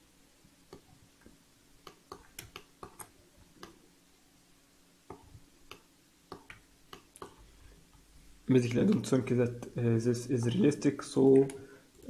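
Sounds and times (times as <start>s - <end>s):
keyboard and mouse clicking: 1.9s - 3.8s.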